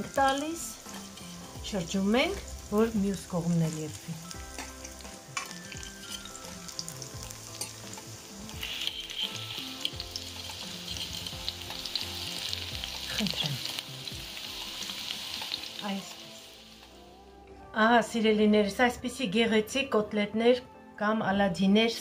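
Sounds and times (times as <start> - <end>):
fritters sizzling in hot oil: 0.0 - 17.0.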